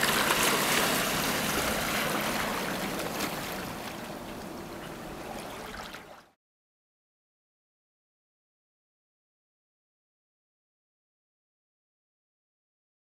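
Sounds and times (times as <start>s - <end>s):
water splashing along boat hull: 0.0s - 6.4s.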